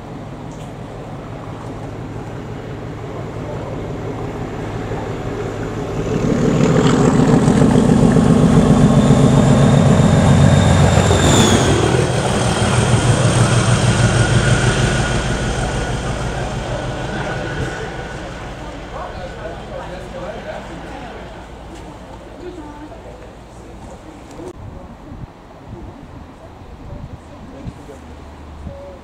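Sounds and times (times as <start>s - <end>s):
high whine: 0.0s - 22.2s
diesel locomotive passing: 0.0s - 24.6s.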